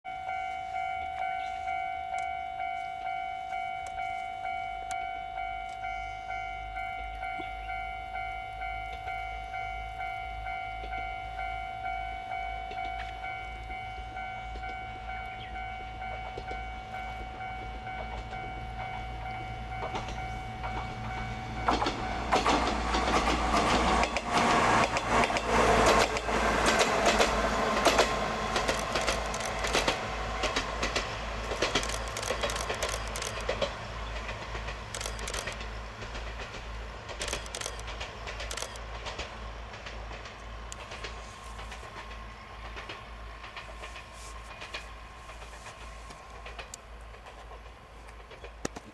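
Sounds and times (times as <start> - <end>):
railway crossing bell ringing: 0.1 - 34.2
train wheels clattering on track: 12.6 - 48.9.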